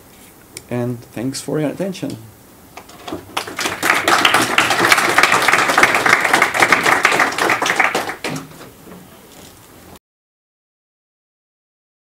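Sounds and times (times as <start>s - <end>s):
audience applauding: 2.8s - 8.6s.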